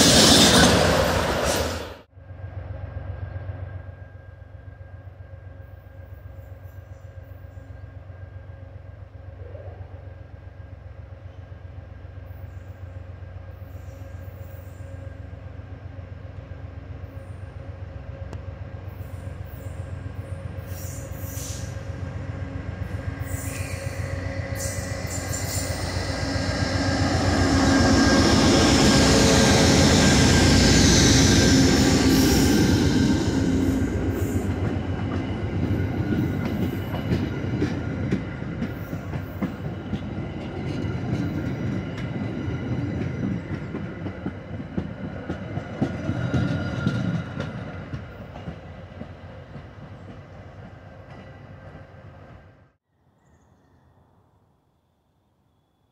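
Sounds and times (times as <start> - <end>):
diesel locomotive engine rumble: 0.0 - 52.7
train wheels clacking over rails: 24.6 - 51.4.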